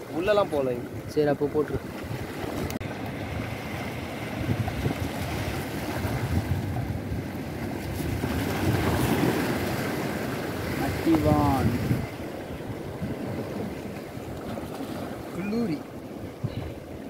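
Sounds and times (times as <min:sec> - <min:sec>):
sea surf against rocks: 0:00.0 - 0:17.0
wind buffeting microphone: 0:00.0 - 0:17.0.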